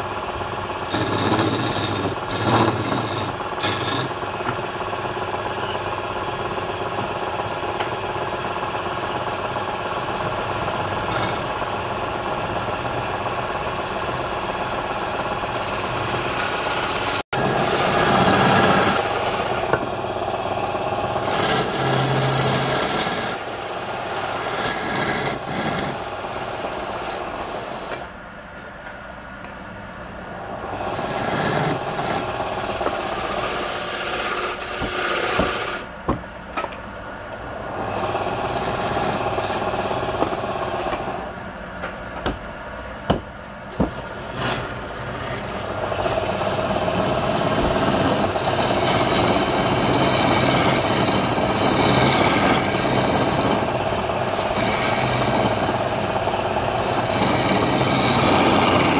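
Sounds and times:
chisel scraping wood on lathe: 0.8s - 6.7s, 10.1s - 11.7s, 14.9s - 19.8s, 21.2s - 28.1s, 30.8s - 35.9s, 38.3s - 40.2s, 43.8s - 58.9s.

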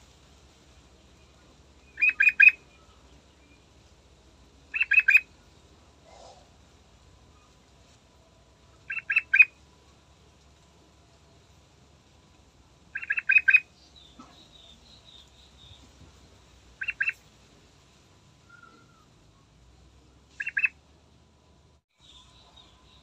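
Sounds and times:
bird chirping: 1.8s - 3.7s, 4.7s - 5.3s, 8.8s - 9.6s, 12.9s - 17.2s, 20.3s - 20.8s, 22.0s - 23.0s.

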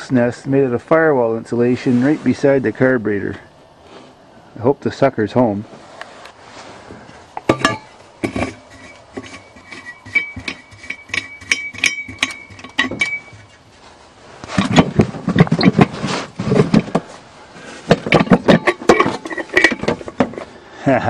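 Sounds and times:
clattering and rustling: 6.5s - 20.6s
squeaky metal wing nut turning: 7.6s - 13.6s, 14.6s - 15.9s, 18.1s - 20.2s.

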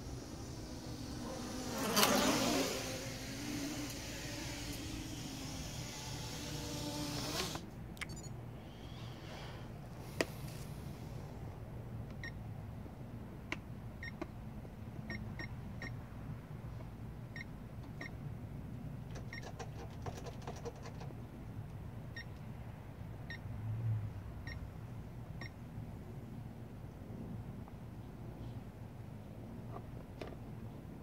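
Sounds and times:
low outdoor rumble: 0.0s - 10.0s
short electronic beeps: 8.0s - 8.4s.

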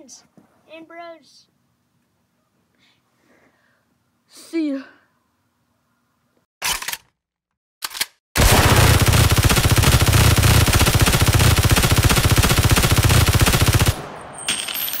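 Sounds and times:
rapid automatic gunfire: 8.4s - 14.2s.

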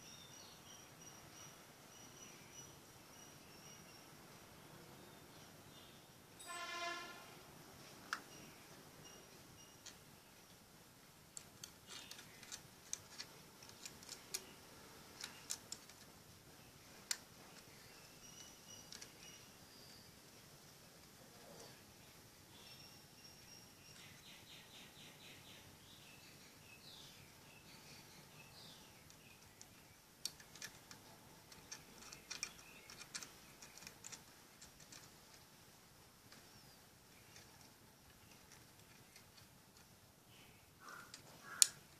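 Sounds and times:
small plastic clicks: 11.3s - 16.2s, 18.4s - 19.3s, 29.0s - 35.5s, 41.1s - 41.9s.

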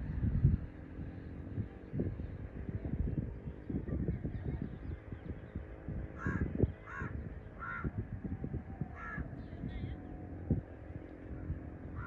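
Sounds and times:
harsh bird calls: 4.5s - 8.1s, 8.9s - 10.1s.

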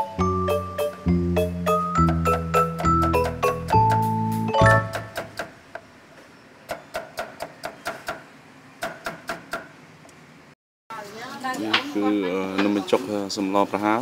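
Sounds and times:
mallet percussion tune: 0.0s - 5.2s
knife chopping on wooden board: 4.8s - 5.6s, 6.7s - 9.7s.

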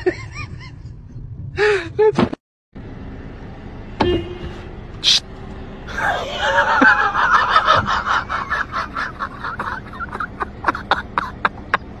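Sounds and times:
person laughing hard: 5.9s - 12.0s.

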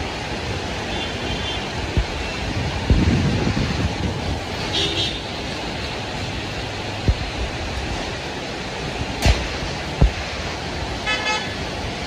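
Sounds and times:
car tyres on wet road: 0.0s - 12.0s
heavy rain hissing: 0.0s - 12.0s
wind buffeting microphone: 1.7s - 11.0s
low bumps: 7.0s - 8.1s.

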